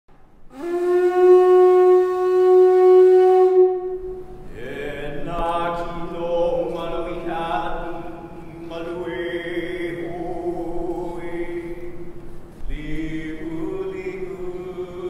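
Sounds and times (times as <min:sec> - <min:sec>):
horn blowing long steady note: 0:00.5 - 0:05.0.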